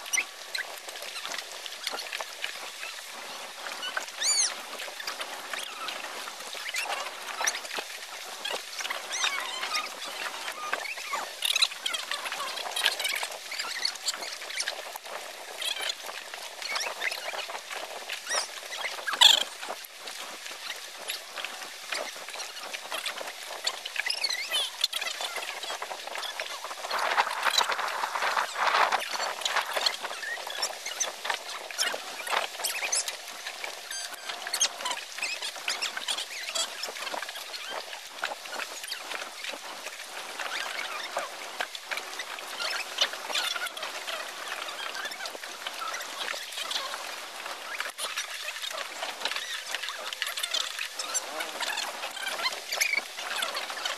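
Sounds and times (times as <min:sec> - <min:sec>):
small waves lapping and splashing: 0:00.0 - 0:53.9.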